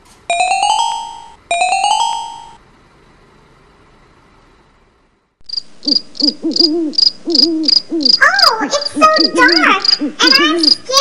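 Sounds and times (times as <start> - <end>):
bell-like chime: 0.3 - 2.6
crickets chirping: 5.5 - 10.8
owl hooting: 5.5 - 10.8.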